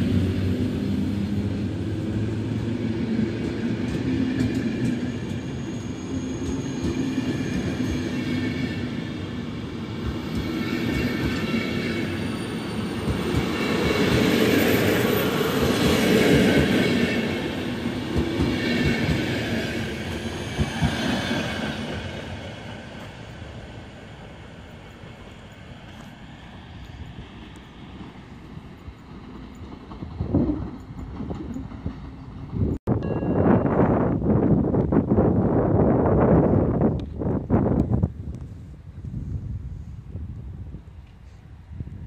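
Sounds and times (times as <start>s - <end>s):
high wheel squeal: 4.9s - 9.0s, 10.3s - 16.2s
train wheels clicking over rail joints: 12.8s - 23.6s, 24.6s - 32.8s.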